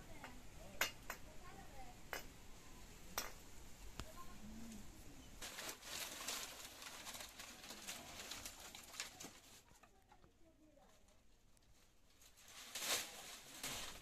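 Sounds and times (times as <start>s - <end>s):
faint low coo: 4.2s - 5.4s
dry fronds and sticks rustling: 5.4s - 10.0s, 10.8s - 14.0s.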